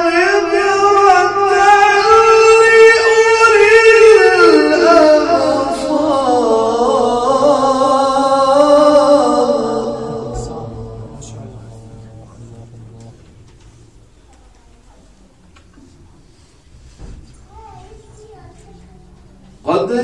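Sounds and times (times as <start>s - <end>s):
man reciting melodically: 0.0s - 13.7s, 19.6s - 20.0s.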